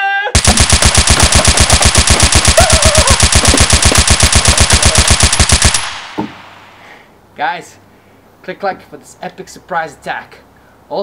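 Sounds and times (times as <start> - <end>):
machine-gun fire: 0.4 - 6.8.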